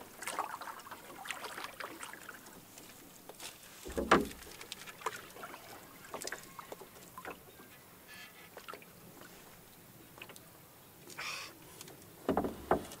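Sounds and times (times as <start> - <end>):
paddle strokes in water: 0.0 - 10.4
light knocks and clicks: 12.3 - 13.0.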